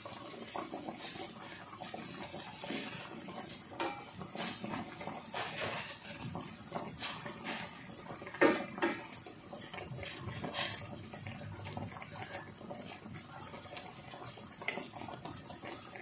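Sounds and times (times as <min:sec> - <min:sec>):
liquid sloshing in a pot: 0:00.0 - 0:16.0
spoon knocking against pot: 0:03.8 - 0:04.2.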